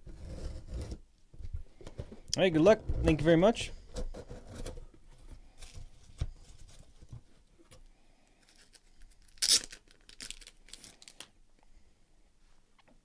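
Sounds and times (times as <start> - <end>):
cardboard rustling and scraping: 0.0 - 7.5.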